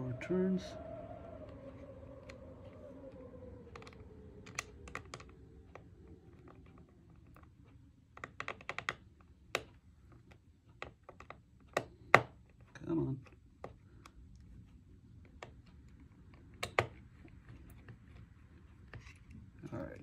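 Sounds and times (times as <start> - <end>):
small clicks and taps of screws: 8.1 - 14.4.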